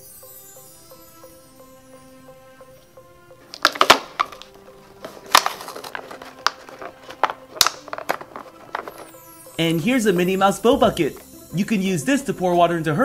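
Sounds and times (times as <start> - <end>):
soft background music: 0.0 - 13.0
plastic toy boats knocking: 3.5 - 9.2.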